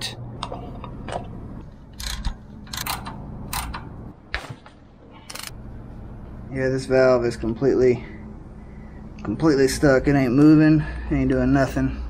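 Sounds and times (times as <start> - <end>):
steady low hum: 0.0 - 12.0
metallic clicks of hand tools: 1.9 - 4.0, 5.3 - 5.5.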